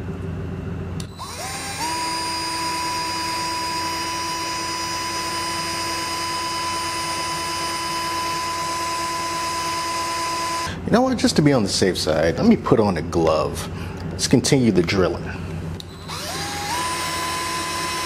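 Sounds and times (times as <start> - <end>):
power drill boring into plastic: 1.0 - 10.7, 15.8 - 18.0.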